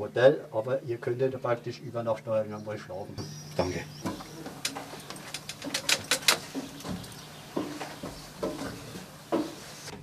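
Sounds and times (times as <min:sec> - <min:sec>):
knocks on wooden floorboards: 0:04.0 - 0:09.6.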